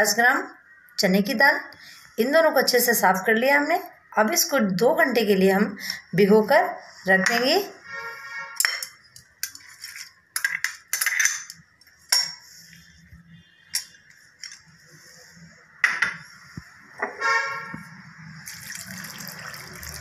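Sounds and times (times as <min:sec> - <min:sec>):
water pouring from jug: 0:18.4 - 0:20.0.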